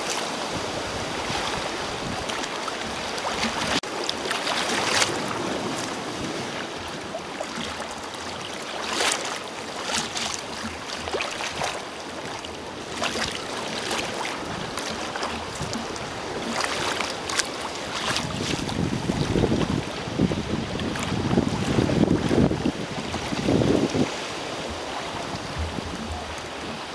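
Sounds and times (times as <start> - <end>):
sea water sloshing and splashing: 0.0 - 26.9
wind buffeting microphone: 0.4 - 3.8, 12.7 - 26.9.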